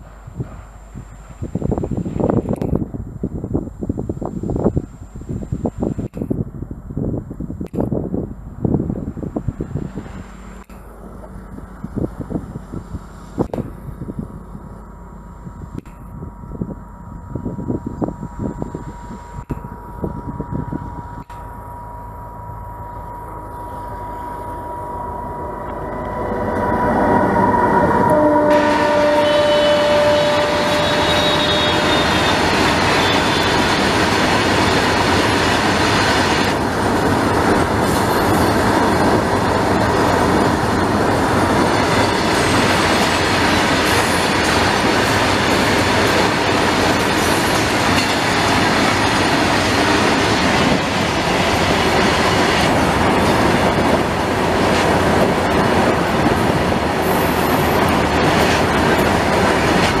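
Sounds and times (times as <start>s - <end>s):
train wheels rumbling on rails: 0.0s - 60.0s
faint high tone: 20.5s - 32.2s.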